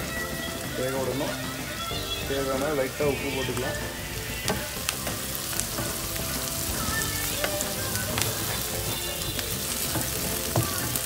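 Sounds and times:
onions sizzling in oil: 0:00.0 - 0:11.0
spatula tapping and scraping pan: 0:04.4 - 0:11.0.

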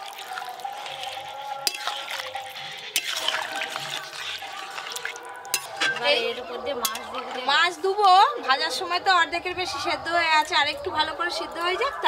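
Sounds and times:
ladle stirring liquid in pan: 0:00.0 - 0:07.8
ladle clinking against pan: 0:01.6 - 0:02.2, 0:02.9 - 0:04.2, 0:04.9 - 0:07.3.

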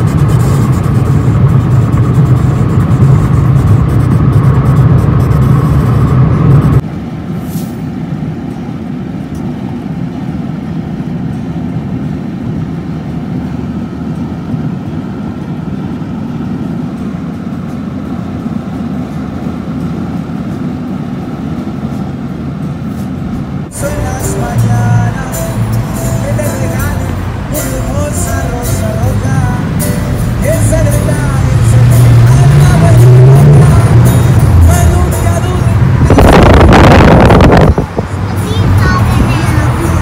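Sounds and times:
car road and engine noise: 0:00.0 - 0:40.0.

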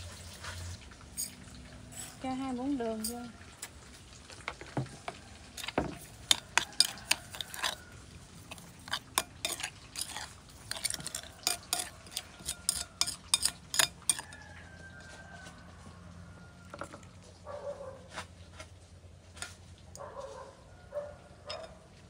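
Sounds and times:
spoon clinking against a bowl: 0:05.6 - 0:07.8, 0:08.4 - 0:14.4, 0:21.4 - 0:21.8.

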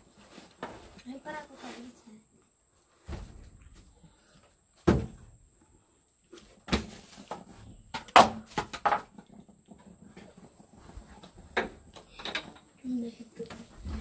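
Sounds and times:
sharp knocks and thuds: 0:04.8 - 0:05.3.

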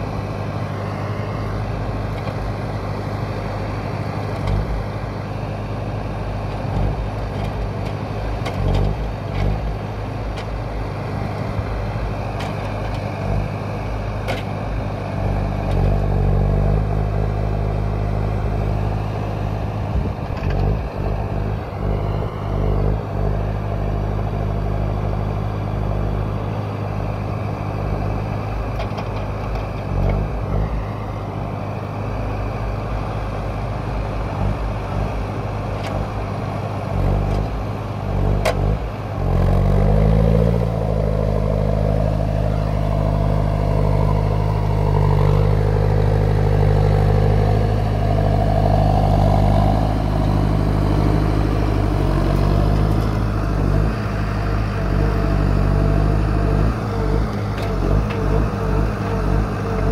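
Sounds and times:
diesel engine running: 0:00.0 - 0:59.9
wavering whine: 0:15.9 - 0:28.4, 0:29.9 - 0:35.2, 0:39.2 - 0:59.9.

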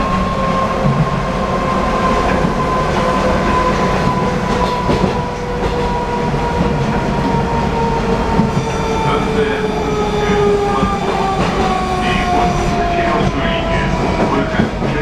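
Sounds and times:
train wheels rumbling on rail: 0:00.0 - 0:15.0.

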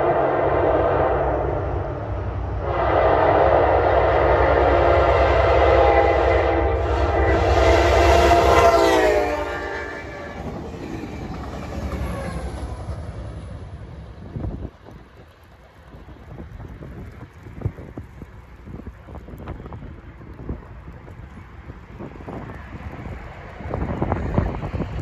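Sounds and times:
locomotive engine rumbling: 0:00.0 - 0:25.0
train wheels rumbling: 0:00.0 - 0:25.0
locomotive horn blast: 0:02.6 - 0:10.5.

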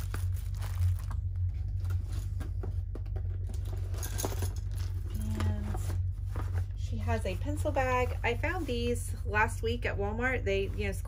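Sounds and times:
soap package rustling: 0:00.0 - 0:02.2.

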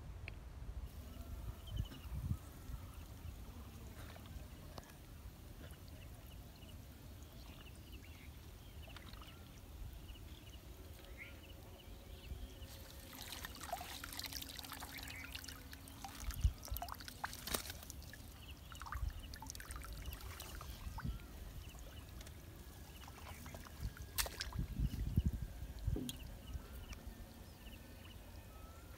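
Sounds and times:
wind rumbling on microphone: 0:00.0 - 0:03.2, 0:23.4 - 0:27.0
water trickling and splashing: 0:02.2 - 0:11.3, 0:12.1 - 0:27.1.

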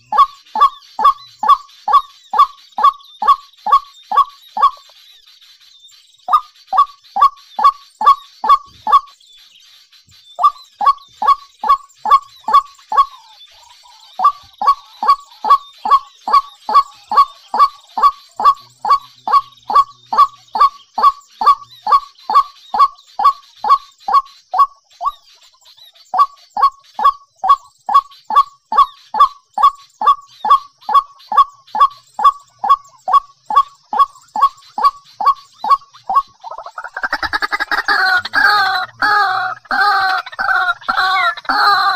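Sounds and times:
bird honking call: 0:00.0 - 0:04.8, 0:10.4 - 0:24.7, 0:28.4 - 0:41.9.

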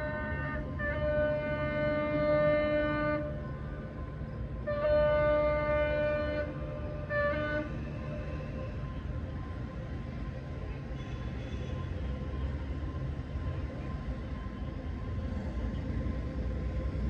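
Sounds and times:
locomotive horn blasts: 0:00.0 - 0:03.8, 0:04.6 - 0:08.6
low steady train rumble: 0:00.0 - 0:17.0.

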